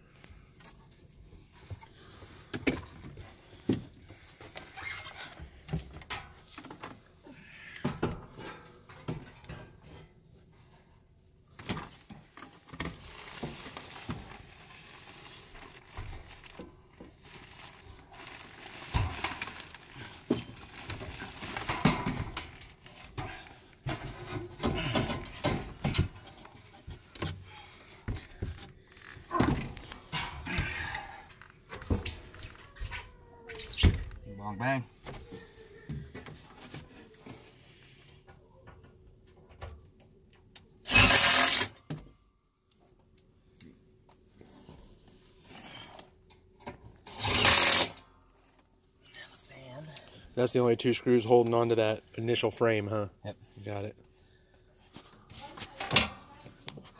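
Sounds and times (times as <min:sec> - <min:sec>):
rustling: 0:11.9 - 0:30.9.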